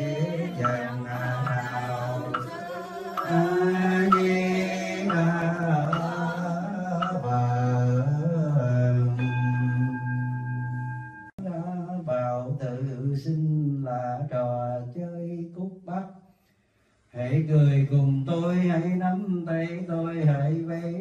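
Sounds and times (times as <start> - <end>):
monks chanting: 0.0 - 9.1
bowl bell ringing: 9.2 - 11.4.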